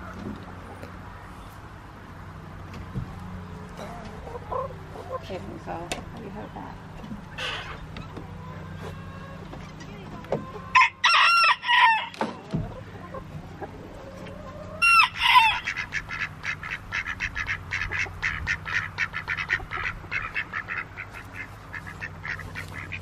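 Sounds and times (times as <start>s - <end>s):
ducks quacking: 3.7s - 10.8s, 12.7s - 23.0s.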